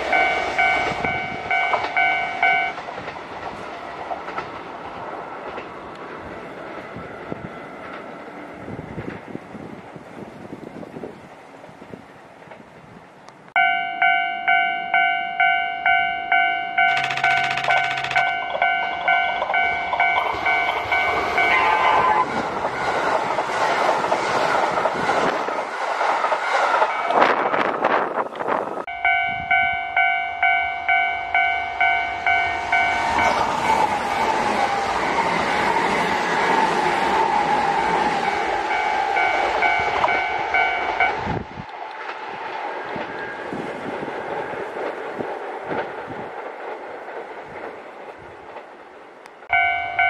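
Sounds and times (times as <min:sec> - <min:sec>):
train wheels rumbling on rail: 0:00.0 - 0:50.0
level crossing bell ringing: 0:00.1 - 0:02.8, 0:13.6 - 0:21.8, 0:28.9 - 0:33.4, 0:38.3 - 0:41.2, 0:49.5 - 0:50.0.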